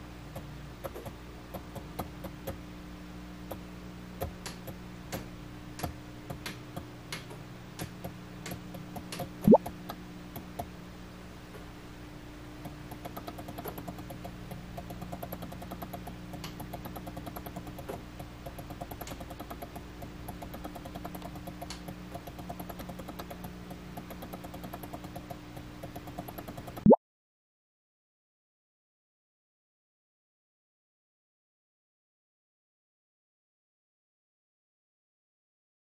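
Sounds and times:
fast run of small clicks: 0.3s - 2.6s, 3.4s - 10.8s, 12.6s - 26.9s.

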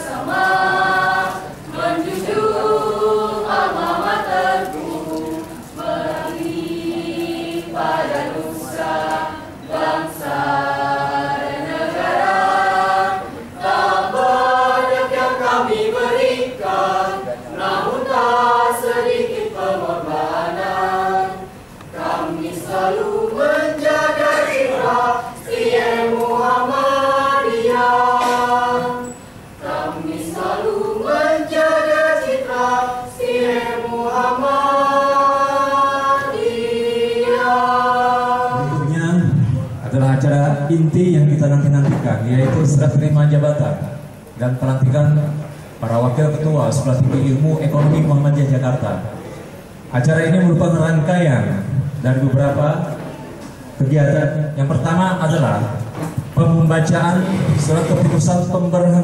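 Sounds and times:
mixed choir singing: 0.0s - 39.5s.

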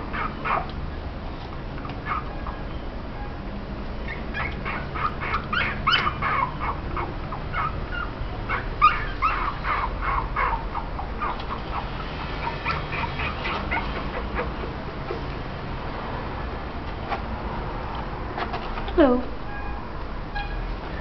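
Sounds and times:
puppies whimpering and yelping: 0.0s - 0.8s, 1.8s - 3.4s, 4.0s - 15.4s.

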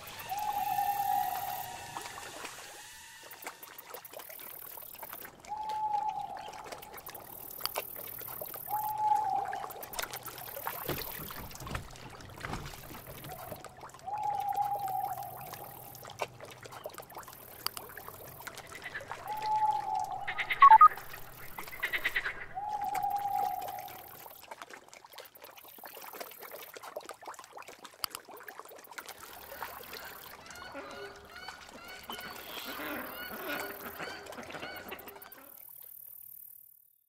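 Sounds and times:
long level bird calls: 0.0s - 3.7s, 4.7s - 17.0s, 17.8s - 24.4s, 29.5s - 36.4s
short chirping burst: 0.0s - 5.0s, 20.5s - 21.0s
water trickling: 0.0s - 36.6s
geese honking: 30.4s - 35.5s.

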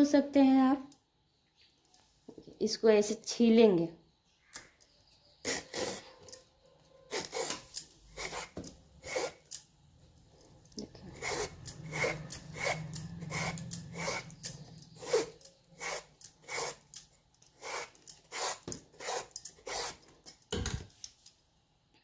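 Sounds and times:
vegetable peeler scraping skin: 5.4s - 6.2s, 7.1s - 9.6s, 10.8s - 20.2s.

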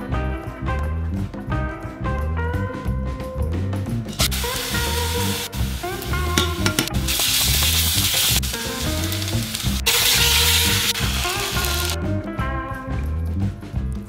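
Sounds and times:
background music with bass line: 0.0s - 14.0s
loud sizzle-like hiss: 4.2s - 12.0s.

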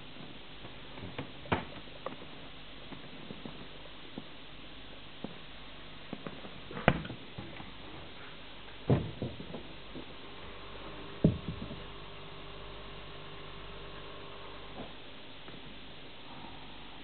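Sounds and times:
low steady hum: 0.0s - 17.0s
knocks and clunks in cabinet: 8.9s - 9.7s, 11.2s - 11.8s.

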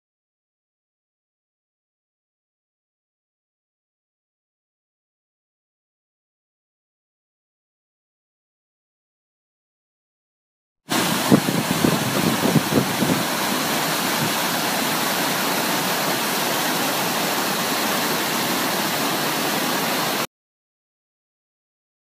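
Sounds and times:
wind buffeting microphone: 10.9s - 14.6s
white water rushing over rocks: 10.9s - 20.3s.

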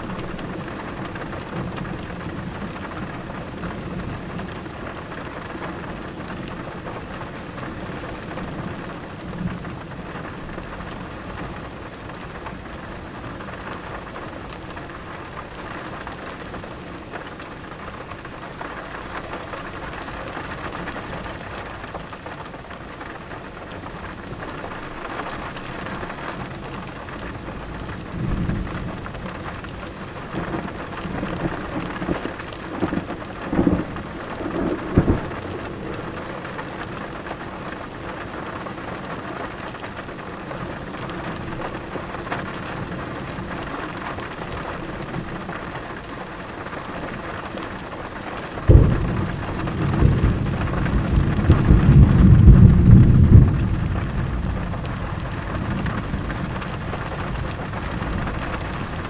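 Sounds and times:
thunder rumbling: 24.3s - 38.3s, 48.5s - 59.0s.

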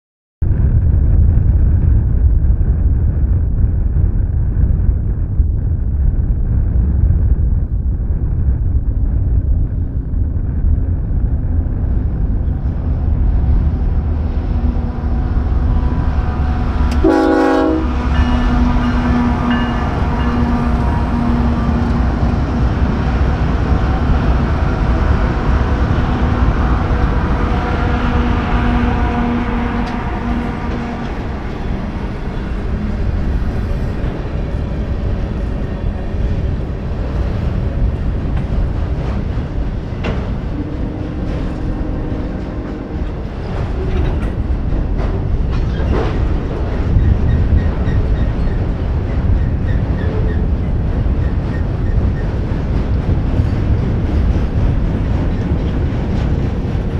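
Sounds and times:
freight train rumbling past: 0.4s - 56.9s
steady tones: 10.2s - 45.5s
train horn blast: 14.6s - 22.6s, 24.4s - 33.8s, 40.6s - 43.8s.

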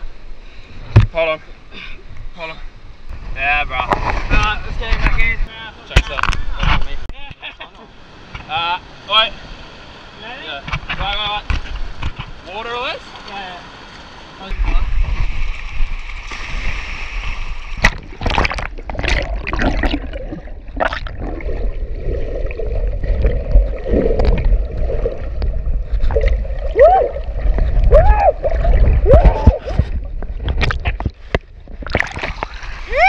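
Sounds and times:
underwater water rumbling: 14.6s - 33.0s
bubbling chirps: 18.2s - 29.2s.

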